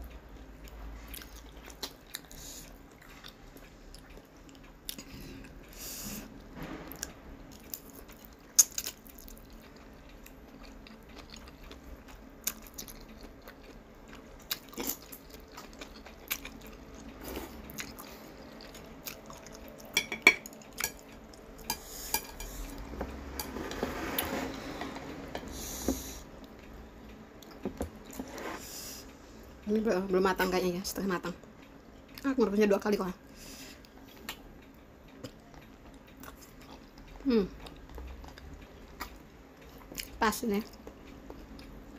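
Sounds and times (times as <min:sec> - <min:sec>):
chewing and slurping noodles: 0:07.5 - 0:19.9.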